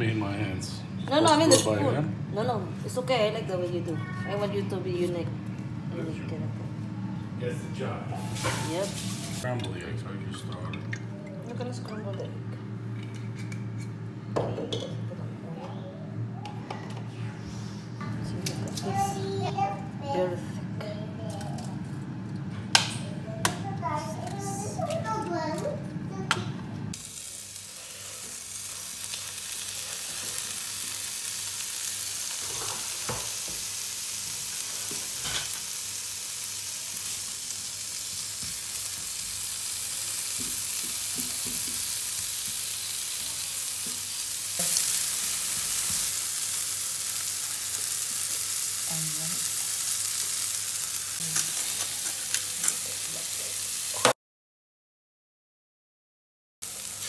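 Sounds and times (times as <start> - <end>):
vegetables sizzling in hot oil: 8.1 - 9.5, 27.0 - 54.2, 56.6 - 57.0.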